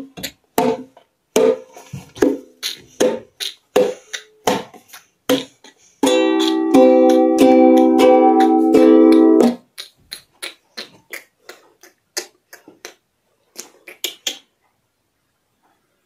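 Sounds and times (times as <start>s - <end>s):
ukulele strummed chords: 6.0s - 9.6s.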